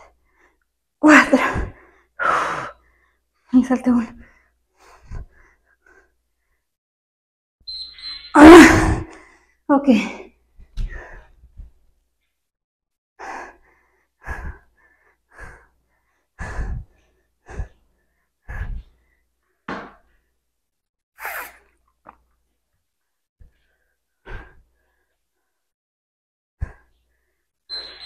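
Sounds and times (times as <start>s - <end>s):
woman panting heavily: 1.2s - 3.2s, 4.2s - 6.2s, 13.2s - 19.3s.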